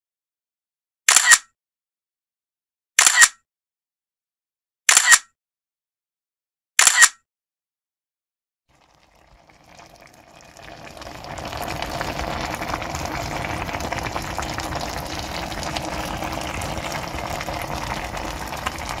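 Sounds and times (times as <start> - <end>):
sauce simmering and sizzling: 8.7 - 19.0.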